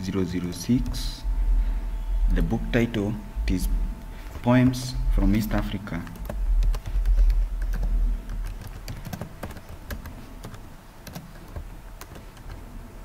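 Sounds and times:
low rumble: 0.8 - 8.5
keyboard typing clicks: 5.6 - 12.7.

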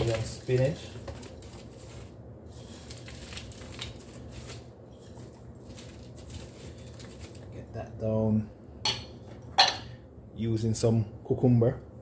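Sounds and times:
frozen spinach rustling: 0.0 - 7.6
low steady hum: 0.0 - 12.0.

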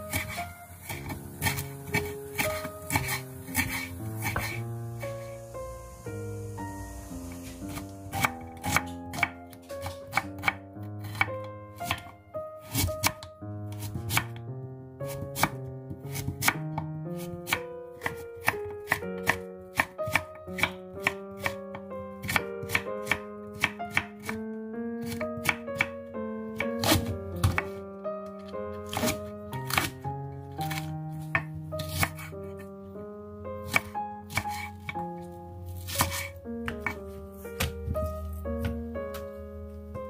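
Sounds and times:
background music with melody: 0.0 - 40.0
knife chopping on wooden board: 0.1 - 4.6, 7.7 - 11.3, 16.1 - 16.6, 26.6 - 27.7, 28.9 - 29.9, 30.6 - 32.3, 33.7 - 35.0, 35.8 - 37.0.

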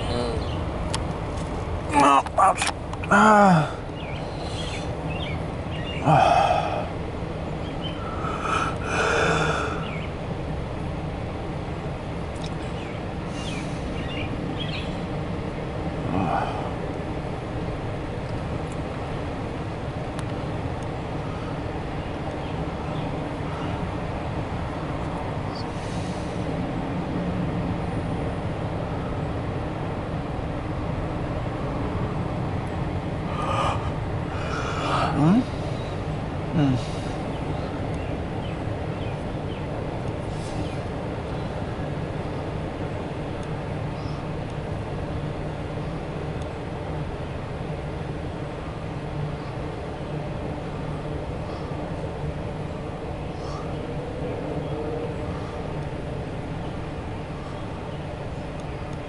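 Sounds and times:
distant freight train rumble: 0.0 - 59.0
road traffic: 0.0 - 59.0
breaths close to microphone: 33.3 - 35.8.

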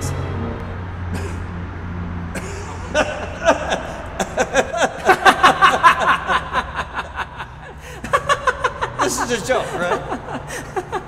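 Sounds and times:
man laughing loudly: 2.4 - 11.0.

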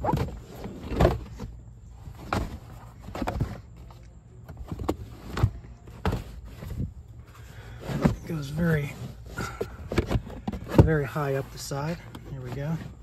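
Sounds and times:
rubber mat thumping and scraping: 0.0 - 3.9, 4.5 - 13.0.

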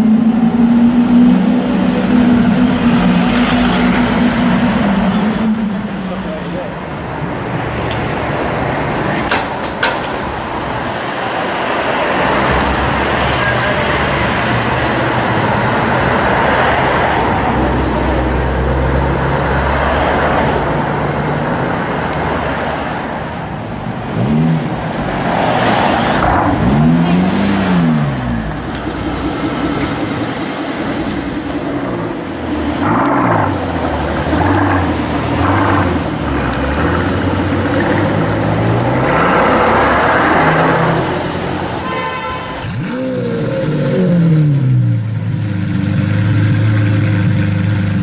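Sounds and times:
car engine revving: 0.0 - 7.5, 24.0 - 41.9, 42.5 - 48.0
car engine pulling away: 24.1 - 41.8.

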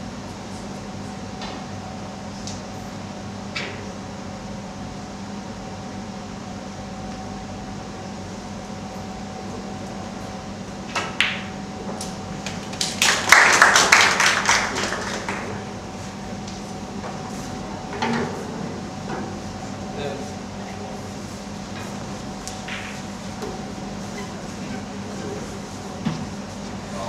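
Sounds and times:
steady hum: 0.0 - 27.0
spectators clapping: 12.4 - 15.8.

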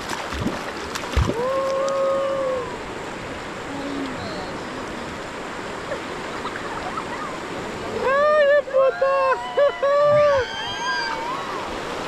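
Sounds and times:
rushing river water: 0.0 - 12.0.

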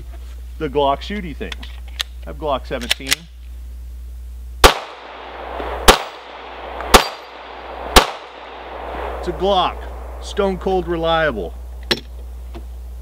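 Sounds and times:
pistol shots with echo: 4.6 - 9.3.

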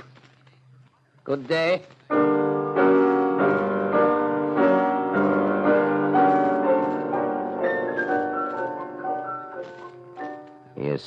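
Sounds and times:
sustained keyboard chords: 2.1 - 10.8.

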